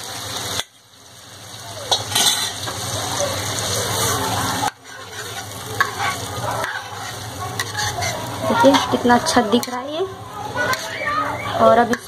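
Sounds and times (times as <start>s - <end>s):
beans sizzling in a pan: 0.0s - 12.0s
ladle scraping a pan: 1.9s - 2.9s, 3.7s - 12.0s.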